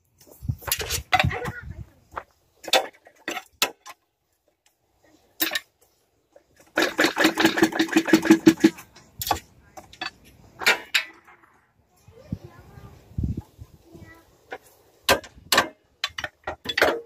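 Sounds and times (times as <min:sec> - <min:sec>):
metal tool clicks and knocks: 0:05.4 - 0:05.7, 0:15.1 - 0:17.0.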